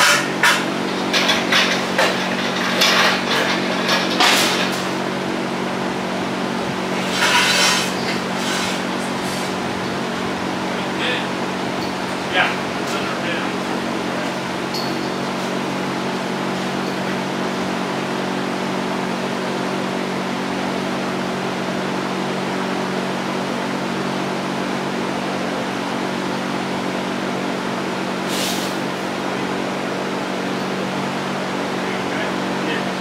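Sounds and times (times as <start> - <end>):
machine hum: 0.0 - 28.2
brief high hiss: 28.3 - 28.8.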